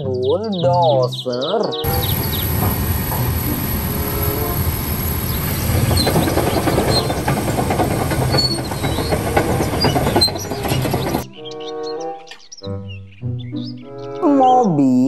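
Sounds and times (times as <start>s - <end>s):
bulldozer diesel engine rumbling: 1.8s - 11.3s
metallic clanking and clicking: 1.9s - 11.3s.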